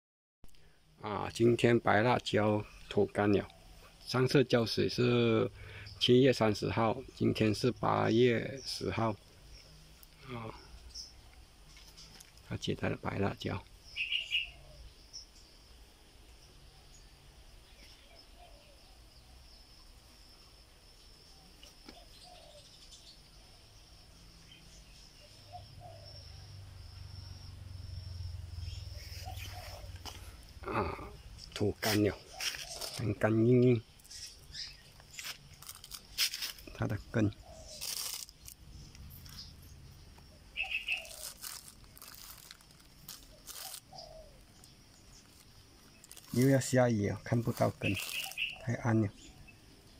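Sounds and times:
bird calls: 0.6s - 15.6s, 16.5s - 20.0s, 21.0s - 27.2s, 27.8s - 49.9s
insect buzz: 13.4s - 49.9s
plastic bag crinkling: 32.5s - 33.1s, 35.1s - 36.7s, 37.7s - 39.4s, 40.6s - 44.0s, 45.1s - 48.6s.

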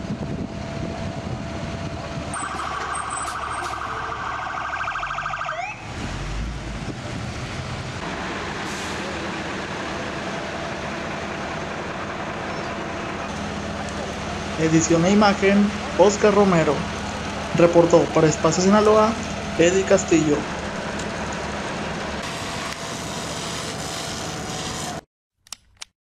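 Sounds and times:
vehicle engine rumble: 0.0s - 24.5s
street noise: 0.0s - 25.0s
warbling emergency siren: 2.3s - 6.0s.

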